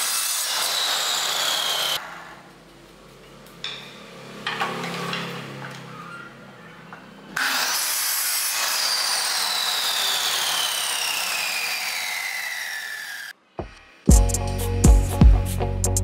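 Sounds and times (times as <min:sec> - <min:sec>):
saw motor whine: 0:00.0 - 0:02.0, 0:07.4 - 0:14.1
miter saw cutting wood: 0:00.0 - 0:02.4, 0:07.4 - 0:14.1.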